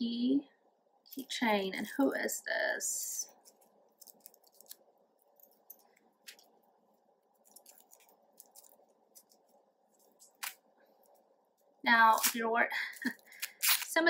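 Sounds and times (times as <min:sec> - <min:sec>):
faint room noise: 0:00.0 - 0:14.0
wrapper crinkling: 0:03.3 - 0:06.6, 0:07.3 - 0:11.3, 0:12.1 - 0:14.0.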